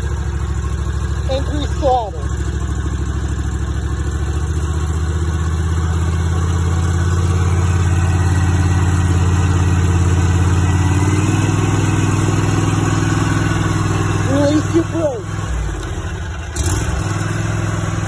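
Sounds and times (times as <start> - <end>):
lawn mower engine running: 0.0 - 18.0.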